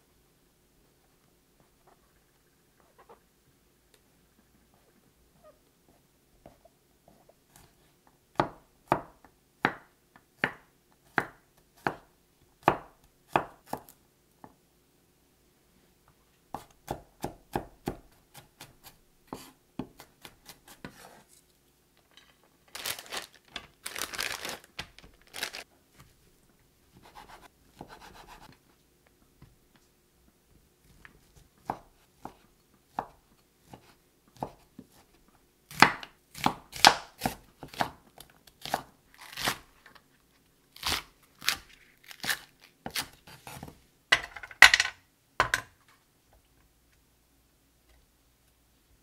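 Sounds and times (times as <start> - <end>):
knife chopping on cutting board: 16.5 - 21.2, 27.0 - 28.5.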